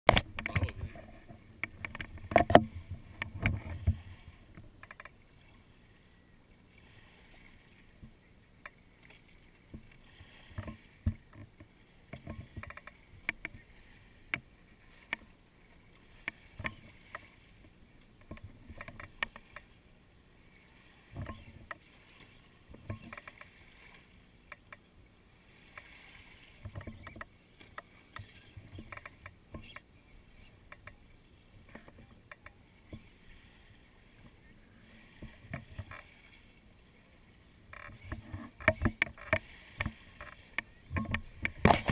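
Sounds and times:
sharp splashes and clicks: 0:00.1 - 0:05.2, 0:37.7 - 0:41.9
small waves washing: 0:00.1 - 0:41.9
water lapping on rocky shore: 0:20.4 - 0:24.4, 0:25.3 - 0:41.9.

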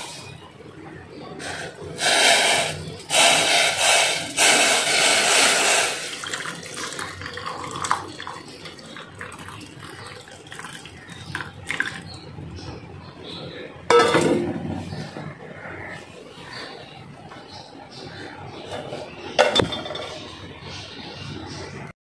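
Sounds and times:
tea pouring into mug: 0:06.1 - 0:12.1
thin trickle of liquid: 0:06.2 - 0:12.1.

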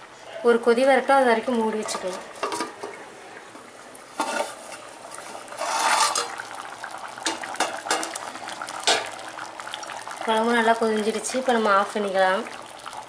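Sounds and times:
thick curry boiling pops: 0:04.0 - 0:13.0.

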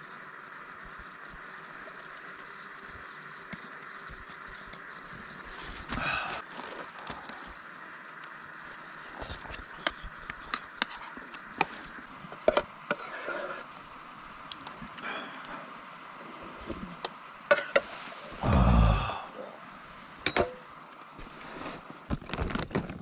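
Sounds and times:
faint hiss: 0:11.5 - 0:22.1.

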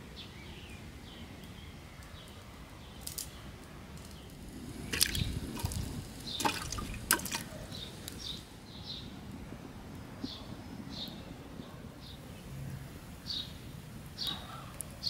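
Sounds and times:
vegetables splashing into water: 0:04.8 - 0:08.3.

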